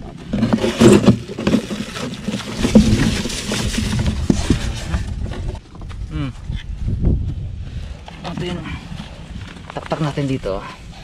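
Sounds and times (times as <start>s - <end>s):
scraping on styrofoam box: 0.4s - 5.6s.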